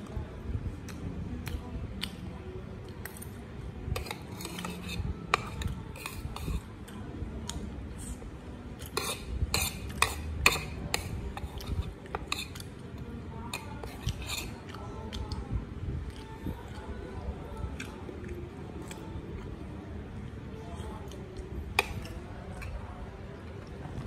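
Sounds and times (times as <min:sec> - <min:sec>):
metal spoon scraping a plate: 0:04.0 - 0:06.7, 0:08.9 - 0:12.7, 0:13.5 - 0:14.7.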